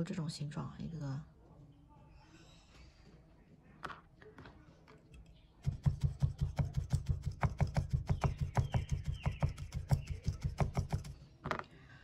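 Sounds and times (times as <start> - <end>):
felting needle poking wool: 5.2 - 11.2.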